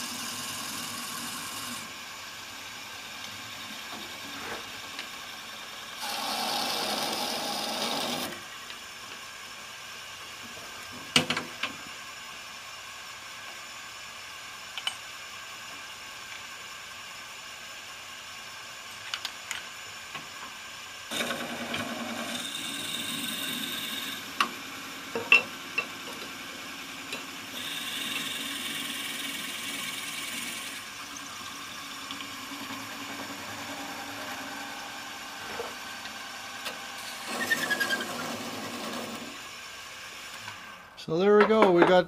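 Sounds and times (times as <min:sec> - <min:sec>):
lathe drilling into wood: 0:00.0 - 0:02.0, 0:05.0 - 0:08.4, 0:21.1 - 0:24.9, 0:26.4 - 0:40.8
hand tool squealing on wood: 0:37.0 - 0:38.9.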